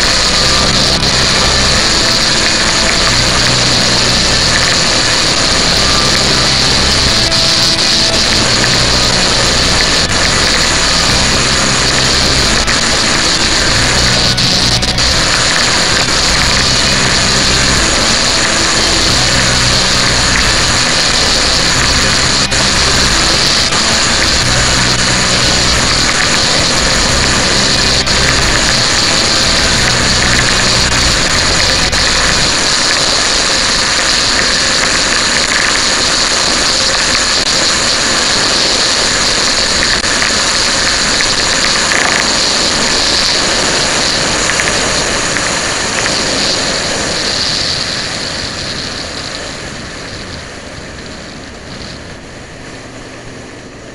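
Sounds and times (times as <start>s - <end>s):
motorcycle engine running: 0.0s - 34.8s
wind rushing over microphone: 0.0s - 53.9s.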